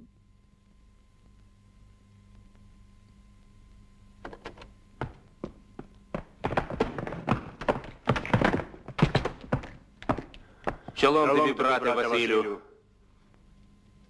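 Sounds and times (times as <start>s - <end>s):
boots thumping on plank floor: 4.3s - 11.0s.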